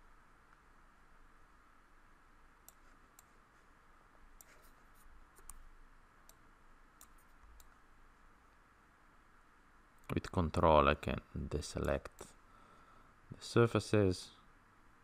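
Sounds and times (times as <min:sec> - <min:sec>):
room hiss: 0:00.0 - 0:15.0
faint computer mouse clicks: 0:02.6 - 0:03.3, 0:04.4 - 0:05.7, 0:07.0 - 0:07.8.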